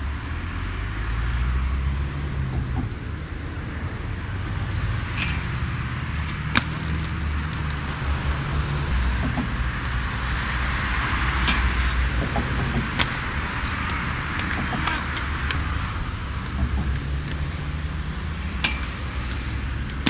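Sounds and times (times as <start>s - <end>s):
skate wheels rolling on pavement: 2.2s - 20.0s
skates clacking on ground: 11.4s - 20.0s.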